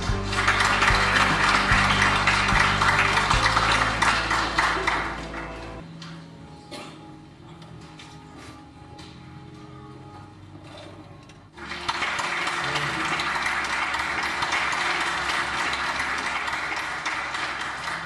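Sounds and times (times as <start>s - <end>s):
audience applauding: 0.0s - 5.8s, 11.6s - 18.0s.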